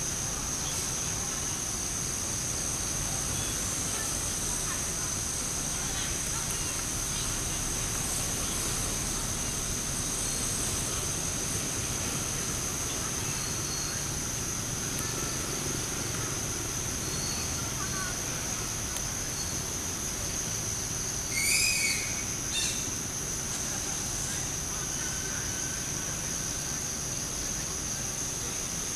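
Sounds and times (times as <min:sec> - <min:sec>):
faint chirps: 0:03.2 - 0:20.4, 0:21.2 - 0:23.0.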